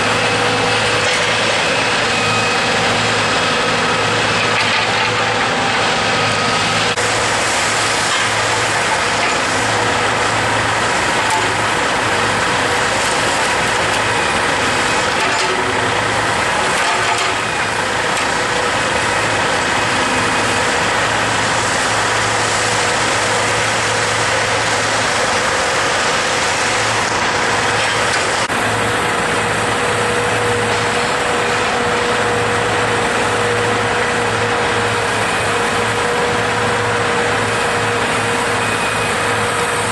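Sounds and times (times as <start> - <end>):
diesel truck engine running: 0.0 - 39.9
road noise hiss: 0.0 - 39.9.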